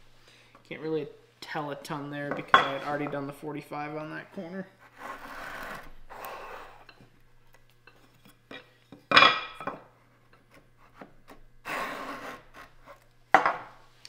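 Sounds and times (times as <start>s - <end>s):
edge trimmer scraping wood: 4.8s - 6.9s.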